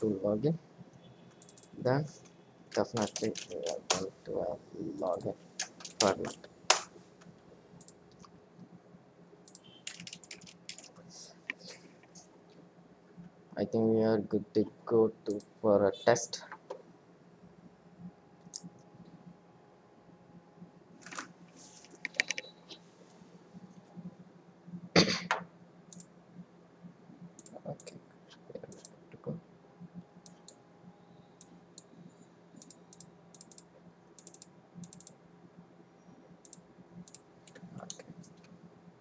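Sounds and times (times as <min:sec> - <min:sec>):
faint steady hum: 0:00.0 - 0:39.0
mouse and keyboard clicks: 0:21.9 - 0:22.5.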